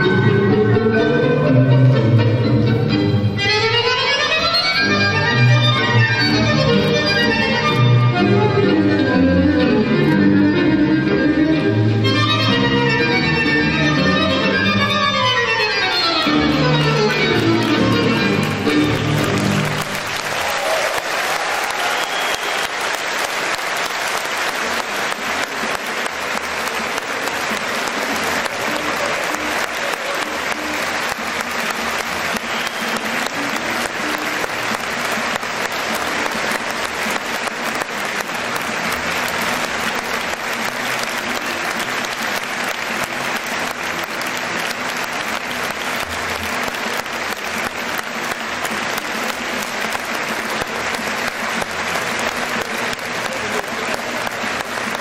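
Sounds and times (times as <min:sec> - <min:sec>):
large audience applauding: 0:13.9 - 0:55.0.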